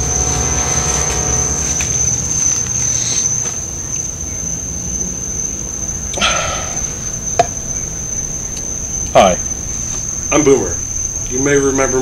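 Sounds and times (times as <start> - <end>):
crickets chirring: 0.0 - 12.0
short breathy sound: 6.2 - 7.0.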